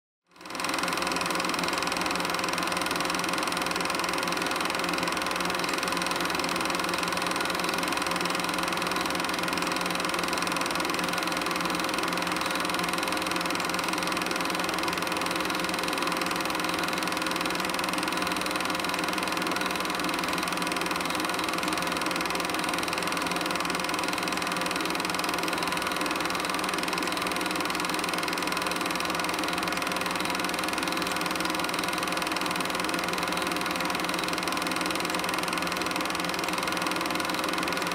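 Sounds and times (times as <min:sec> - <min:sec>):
film projector whirring: 0:00.3 - 0:37.9.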